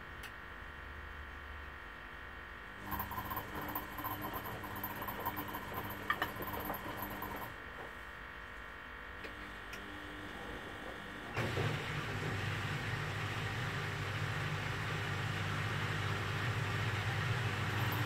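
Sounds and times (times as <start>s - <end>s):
washing machine drum motor whining: 2.8s - 7.6s, 10.4s - 18.0s
motor hum with rushing noise: 2.8s - 18.0s.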